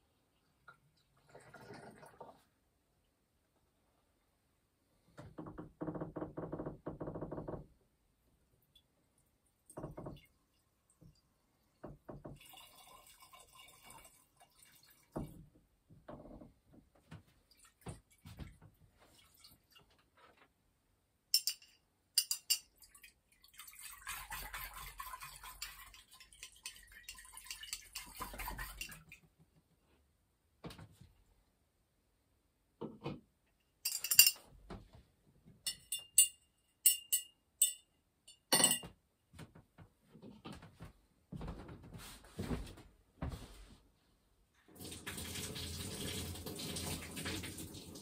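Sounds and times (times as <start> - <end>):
liquid pouring and dripping: 0.4 - 2.5, 8.6 - 15.5, 17.4 - 20.0, 22.2 - 29.2, 44.7 - 48.0
glassware clinks: 21.4 - 22.7, 33.9 - 34.4, 35.7 - 38.9.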